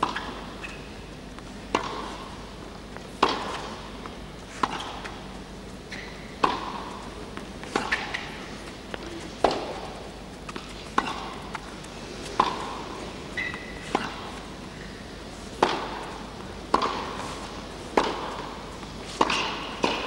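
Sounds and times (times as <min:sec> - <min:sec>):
racket striking tennis ball: 0:00.0 - 0:05.3, 0:05.9 - 0:20.0
ball bouncing: 0:01.7 - 0:02.4, 0:03.2 - 0:03.8, 0:05.9 - 0:11.7, 0:12.3 - 0:12.8, 0:15.6 - 0:17.2, 0:18.0 - 0:20.0.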